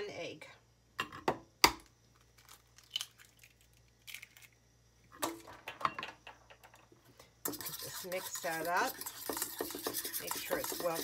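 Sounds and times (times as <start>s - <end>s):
egg cracking: 1.6s - 6.8s
eggshell crackling: 2.1s - 4.6s.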